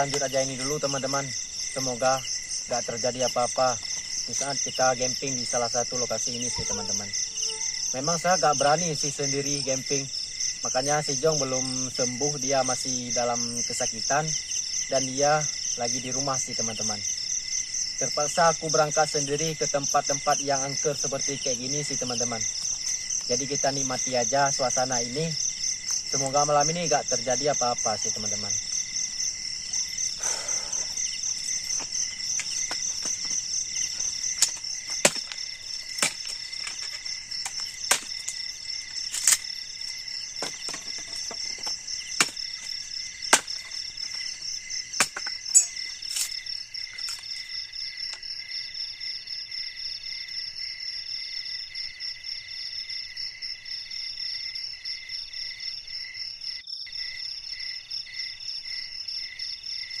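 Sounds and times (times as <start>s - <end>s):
crickets and insects trilling: 0.0s - 60.0s
blade striking bamboo pole: 34.4s - 35.4s, 43.3s - 43.7s, 45.0s - 45.8s.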